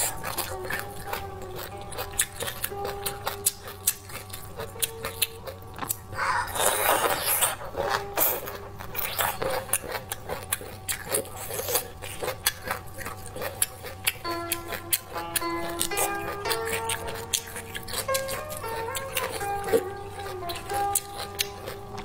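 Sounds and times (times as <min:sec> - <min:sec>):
biting and chewing: 0:00.0 - 0:22.0.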